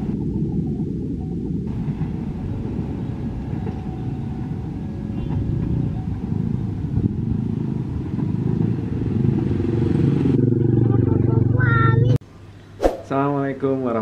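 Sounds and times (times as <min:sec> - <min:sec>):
motorcycles and road traffic: 0:04.7 - 0:12.2.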